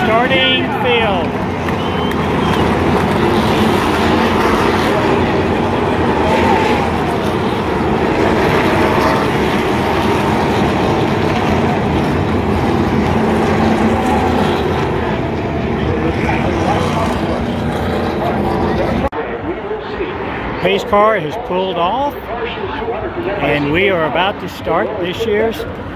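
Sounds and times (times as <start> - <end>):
race truck engines droning: 0.0 - 25.9.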